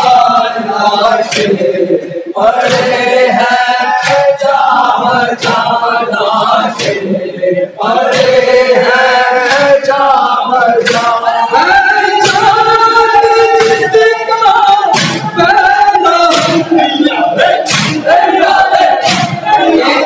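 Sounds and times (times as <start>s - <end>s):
men chanting in chorus: 0.0s - 20.0s
chest-beating strikes: 14.9s - 15.6s, 16.2s - 19.8s.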